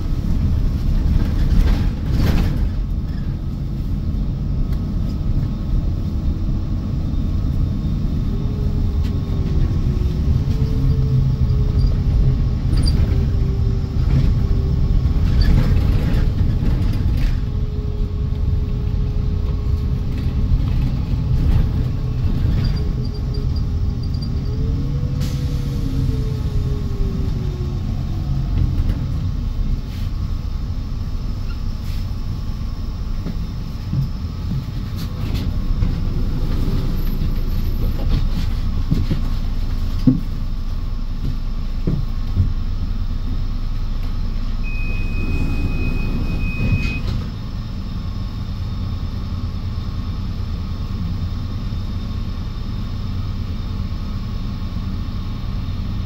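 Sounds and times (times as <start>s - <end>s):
vehicle low rumble: 0.0s - 56.0s
high beep: 44.6s - 47.2s.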